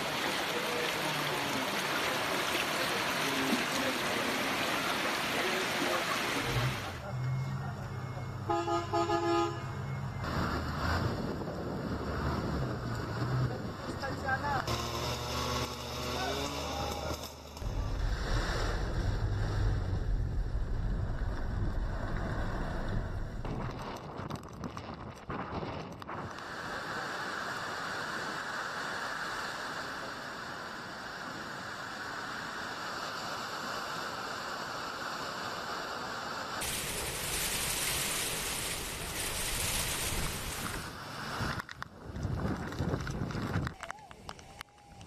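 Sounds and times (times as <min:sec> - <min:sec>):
rushing hiss of wind: 0:24.8 - 0:43.8
wind buffeting microphone: 0:41.4 - 0:43.8.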